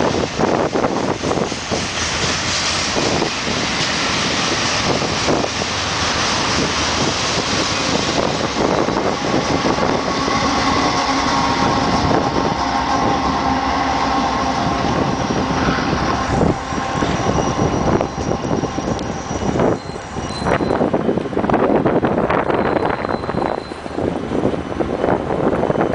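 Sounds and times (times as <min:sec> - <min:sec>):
freight train rumbling past: 0:00.0 - 0:25.9
wheel squeal: 0:14.8 - 0:21.0, 0:22.5 - 0:24.0.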